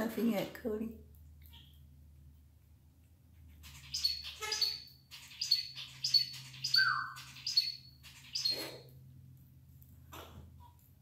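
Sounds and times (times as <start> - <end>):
parrot chirping: 3.4 - 8.9.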